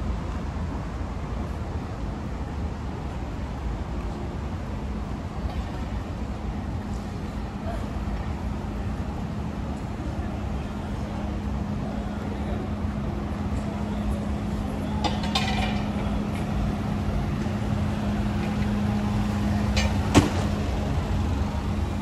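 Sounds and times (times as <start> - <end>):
low traffic rumble: 0.0 - 22.0
car engine humming: 10.7 - 22.0.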